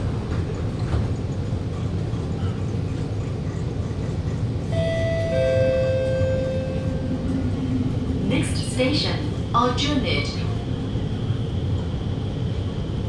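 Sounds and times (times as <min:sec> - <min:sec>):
metro car low rumble: 0:00.0 - 0:13.0.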